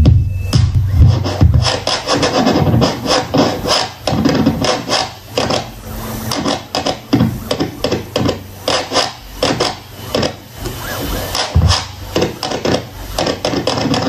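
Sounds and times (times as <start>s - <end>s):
vinyl record scratching: 0.0s - 14.0s.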